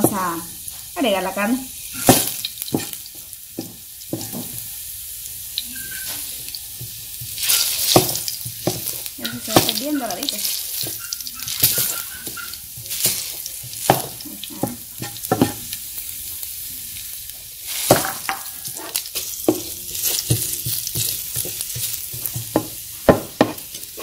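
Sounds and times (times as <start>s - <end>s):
garlic sizzling in hot oil: 0.0s - 24.0s
wooden spatula scraping a pan: 5.9s - 15.8s, 17.6s - 24.0s.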